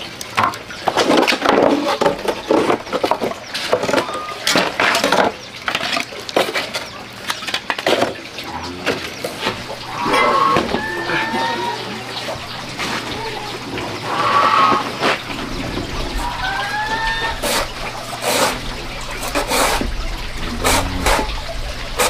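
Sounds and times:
birds calling: 2.0 - 22.0.

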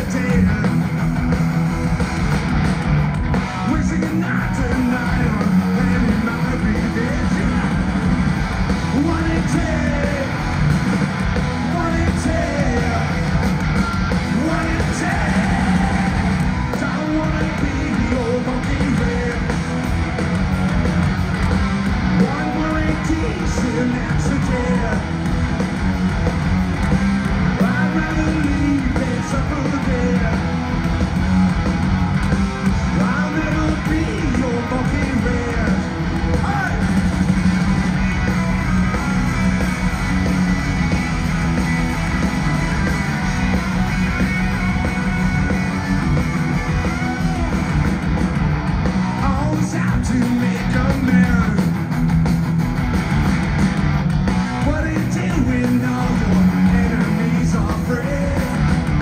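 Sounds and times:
sung vocals: 0.0 - 0.9, 3.6 - 7.9, 8.9 - 10.5, 11.6 - 13.2, 14.3 - 19.8, 22.2 - 25.2, 27.5 - 30.6, 32.8 - 36.8, 49.2 - 51.8, 54.6 - 58.7
bass: 0.0 - 59.0
distorted electric guitars: 0.0 - 59.0
drums: 0.0 - 59.0.

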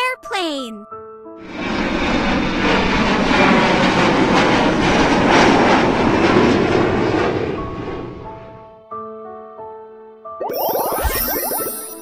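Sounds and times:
jet engine rush: 1.4 - 8.6.

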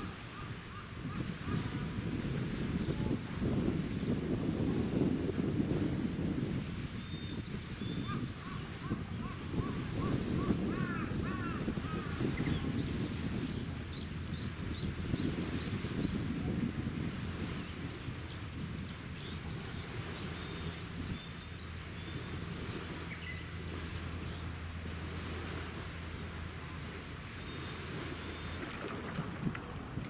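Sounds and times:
wind noise on microphone: 0.0 - 30.0
small birds chirping: 6.6 - 28.6
low machinery hum: 12.0 - 30.0.

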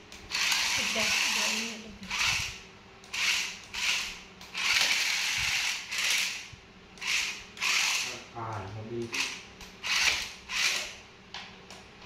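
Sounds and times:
toy car electric motors whirring: 0.2 - 8.2, 9.0 - 11.0.

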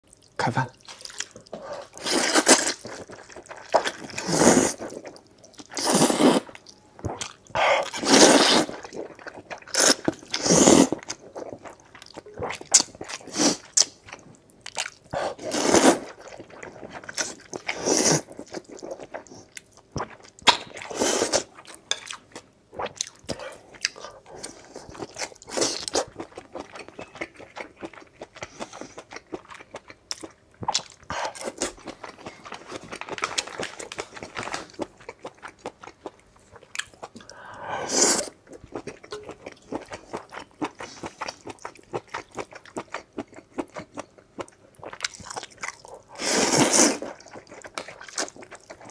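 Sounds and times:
wet chewing: 0.2 - 15.0
slurping noodles: 1.6 - 3.0, 3.7 - 5.0, 5.7 - 6.5, 7.8 - 8.9, 9.7 - 11.0, 46.2 - 47.1.

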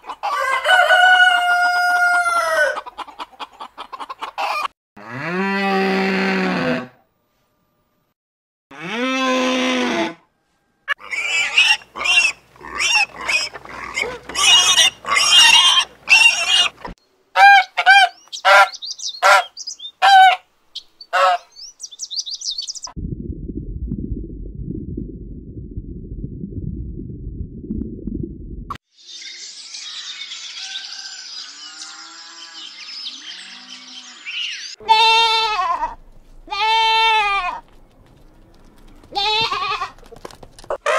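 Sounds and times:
steady low rumble: 22.9 - 28.8.

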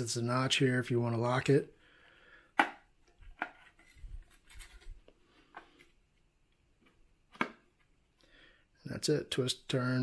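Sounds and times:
cord rubbing: 3.2 - 5.9.

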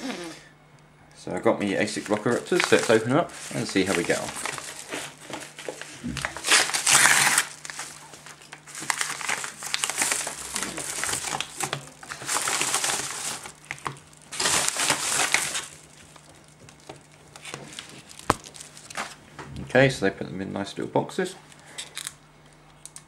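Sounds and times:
padded envelope rustling: 1.8 - 19.2.

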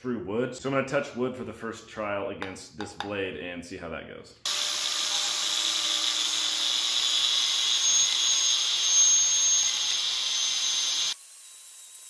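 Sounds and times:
angle grinder whining and grinding: 4.5 - 12.0.

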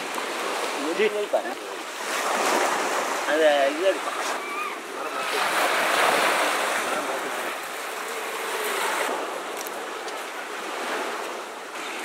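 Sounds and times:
water pouring and splashing: 0.0 - 4.5.

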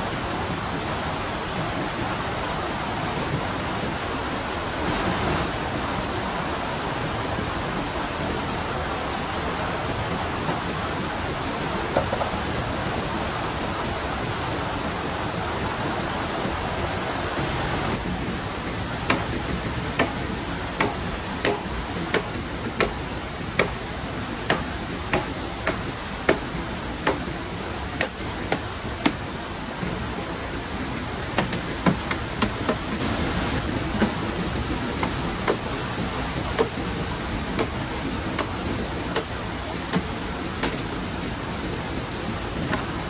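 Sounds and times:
steady hiss of water: 0.0 - 43.0
tool chopping bamboo: 19.0 - 29.2, 31.3 - 33.0, 35.0 - 36.9, 37.6 - 40.9.

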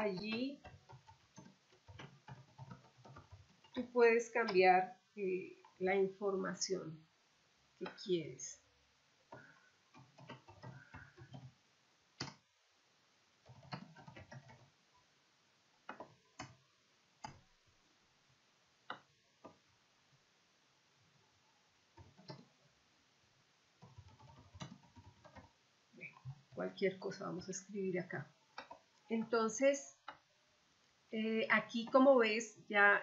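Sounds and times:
computer keyboard typing: 0.0 - 4.6, 9.3 - 11.6, 13.4 - 14.7, 15.9 - 16.6, 22.0 - 22.5, 23.8 - 30.2.

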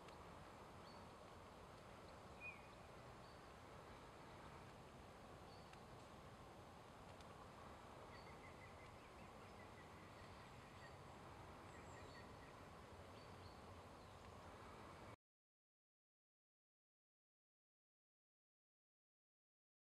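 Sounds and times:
faint outdoor hiss: 0.0 - 15.2.

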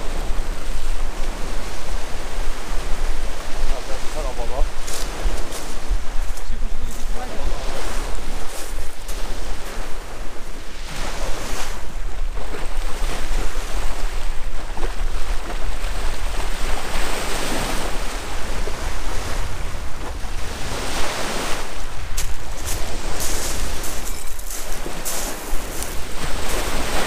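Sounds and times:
sea waves washing on shore: 0.0 - 27.0
wind buffeting microphone: 0.0 - 27.0.

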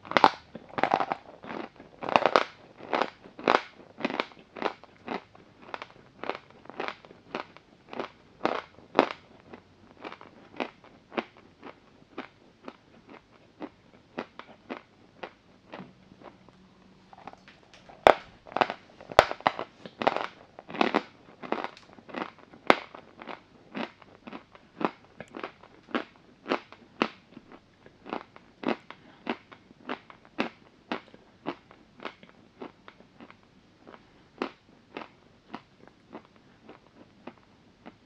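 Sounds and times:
crunching chews: 0.0 - 38.0.

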